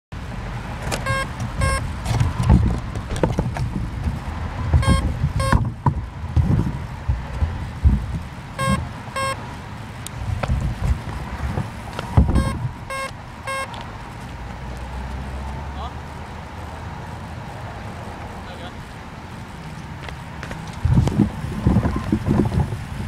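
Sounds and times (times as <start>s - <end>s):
wind buffeting microphone: 0.2s - 23.0s
short electronic beeps: 1.0s - 1.9s, 4.8s - 5.6s, 8.6s - 9.4s, 12.3s - 13.8s.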